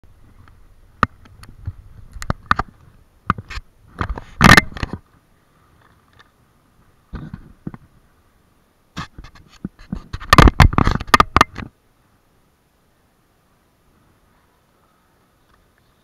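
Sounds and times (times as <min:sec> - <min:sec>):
scraping rub on microphone: 0:09.0 - 0:11.2.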